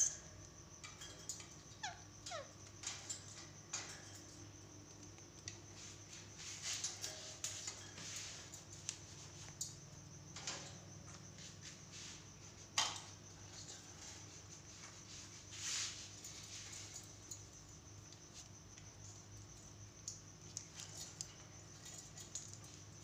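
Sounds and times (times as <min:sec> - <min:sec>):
beaks and feet clicking on cage: 0:00.0 - 0:05.8, 0:06.6 - 0:11.4, 0:12.5 - 0:15.4, 0:16.2 - 0:23.0.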